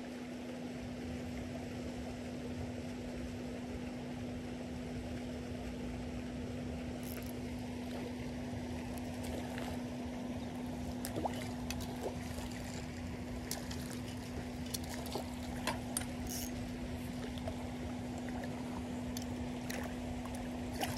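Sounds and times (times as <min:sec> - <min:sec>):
constant low hum: 0:00.0 - 0:20.9
water noise: 0:00.0 - 0:20.9
fish splashing: 0:07.0 - 0:09.9, 0:10.7 - 0:16.4.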